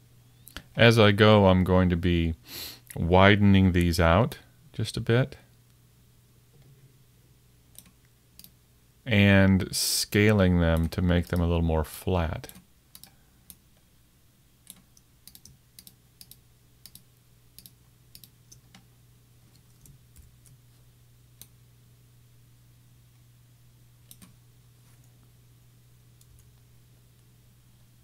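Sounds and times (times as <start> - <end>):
low steady hum: 0.0 - 28.0
keyboard and mouse clicks: 12.5 - 13.6, 14.6 - 17.0, 17.6 - 18.9, 24.1 - 24.4.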